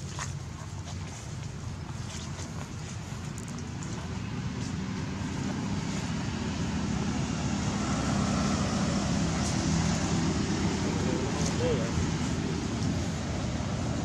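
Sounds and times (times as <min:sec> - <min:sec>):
low motor rumble: 0:00.0 - 0:14.0.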